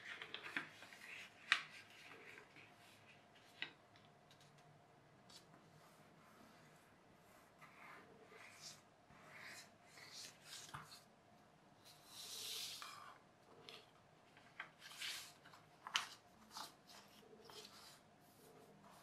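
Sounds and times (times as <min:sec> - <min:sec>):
paper rustling and scraping: 0:14.4 - 0:19.0.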